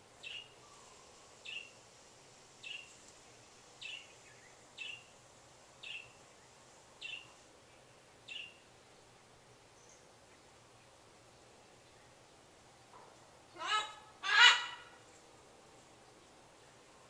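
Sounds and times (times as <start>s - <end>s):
parrot squawking: 13.6s - 15.0s.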